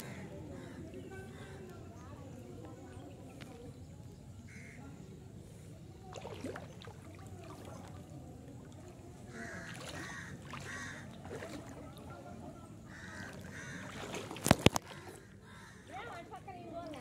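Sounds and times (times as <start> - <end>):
crows cawing: 9.3 - 11.2, 12.9 - 14.2, 14.9 - 16.0.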